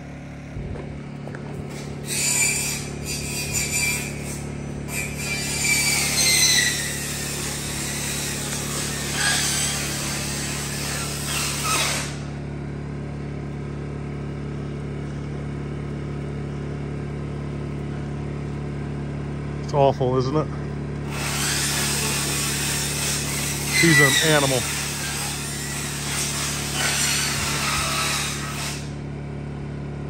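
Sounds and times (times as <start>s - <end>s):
power tool motor humming: 1.6s - 13.1s, 20.9s - 29.1s
harsh hissing cutting noise: 1.7s - 12.4s, 21.1s - 29.0s.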